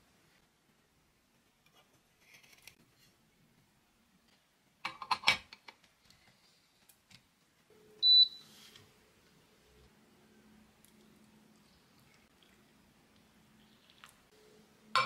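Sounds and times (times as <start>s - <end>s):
faint steady hum: 6.0s - 15.0s.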